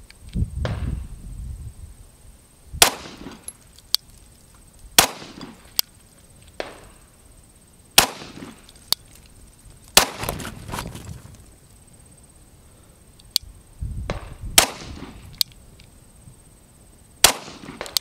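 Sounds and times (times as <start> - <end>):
pistol shots: 2.8 - 3.4, 5.0 - 5.6, 8.0 - 8.6, 10.0 - 10.5, 14.1 - 15.1, 17.2 - 18.0
sharp clicks: 13.2 - 13.5, 15.3 - 15.9.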